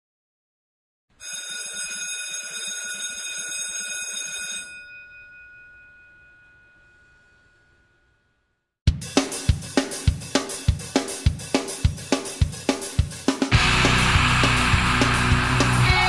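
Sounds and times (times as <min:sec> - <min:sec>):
electric school bell ringing: 0:01.2 - 0:08.4.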